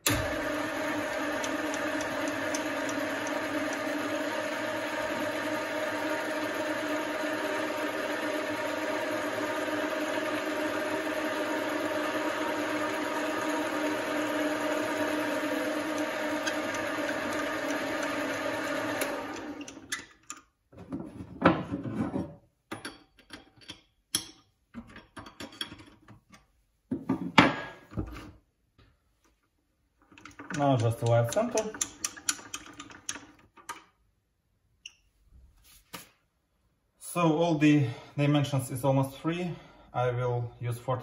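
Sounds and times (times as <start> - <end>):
bench lathe running: 0.0 - 19.8.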